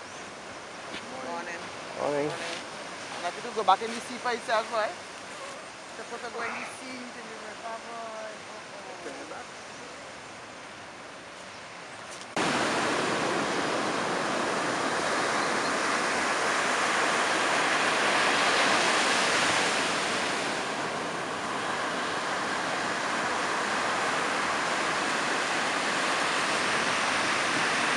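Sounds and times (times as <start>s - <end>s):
surf breaking on a beach: 12.4s - 27.9s.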